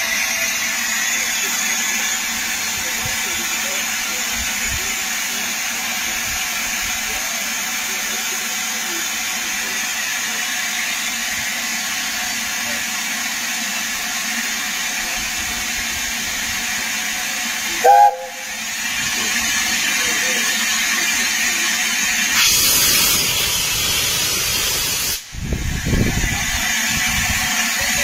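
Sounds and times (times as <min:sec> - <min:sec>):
steam hissing: 0:00.0 - 0:28.0
steam locomotive whistle toot: 0:17.8 - 0:18.7.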